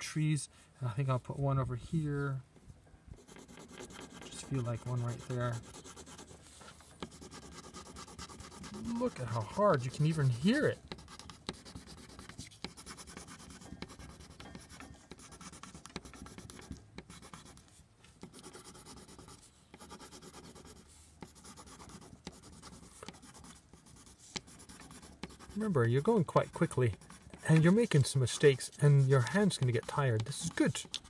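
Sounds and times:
pencil scratching on paper: 3.2 - 31.0.

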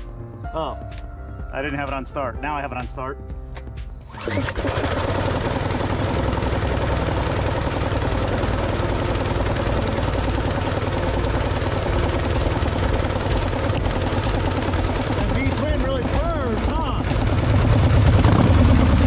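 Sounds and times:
compressor pump running: 4.0 - 19.0
gas engine running: 4.0 - 19.0.

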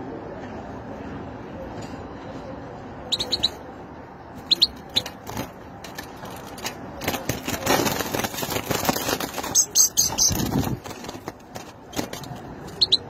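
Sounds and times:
goldfinch chirping: 3.1 - 3.6, 4.4 - 5.1, 9.5 - 10.5, 12.8 - 13.0
wings flapping: 4.5 - 13.0.

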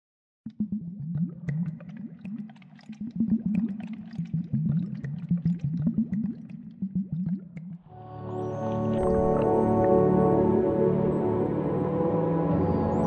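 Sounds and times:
water gurgling and bubbling: 0.5 - 7.9.

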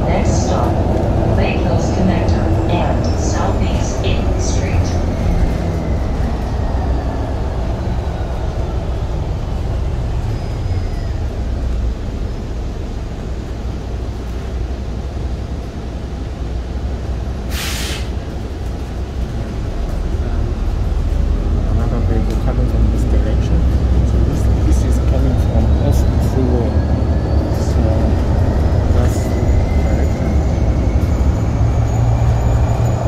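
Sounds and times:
bus engine and road noise: 0.0 - 33.0
compressed air hiss: 17.5 - 18.2.

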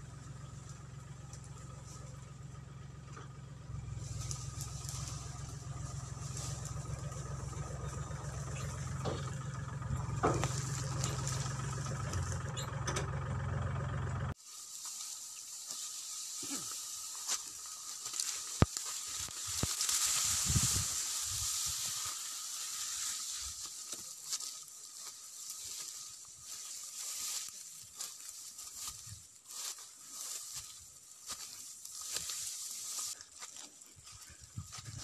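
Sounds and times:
tractor engine running: 0.0 - 14.4, 15.7 - 33.2, 34.0 - 35.0
dry grass rustling: 0.0 - 35.0
crackles and clicks: 17.2 - 21.0.

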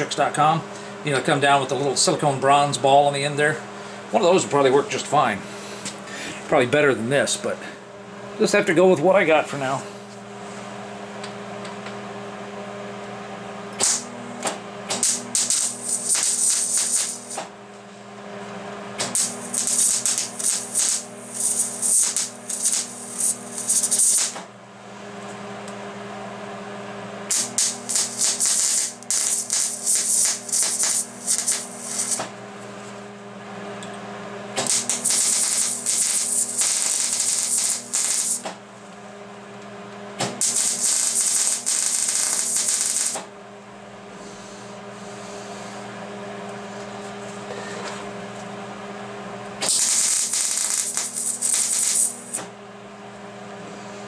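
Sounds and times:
steady low hum: 0.0 - 54.0
welding arc crackling and sizzling: 13.8 - 14.1, 14.9 - 17.5, 19.0 - 24.4, 27.3 - 32.3, 34.6 - 38.6, 40.2 - 43.3, 49.6 - 52.5.

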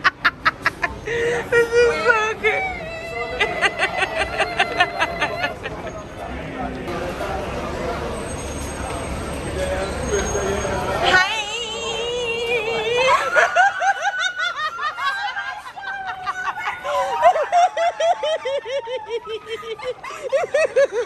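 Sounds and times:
women laughing: 0.0 - 6.1, 12.4 - 21.0
women shrieking: 1.3 - 5.5, 11.8 - 21.0.

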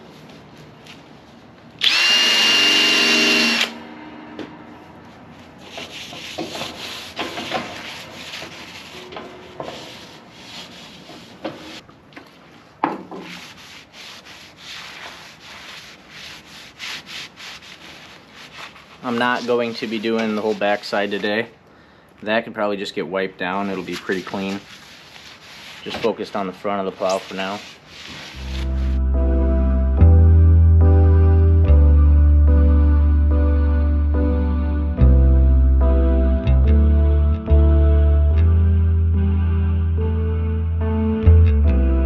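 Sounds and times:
rag rubbing on steel: 5.6 - 11.8, 13.2 - 21.4, 23.7 - 29.0.

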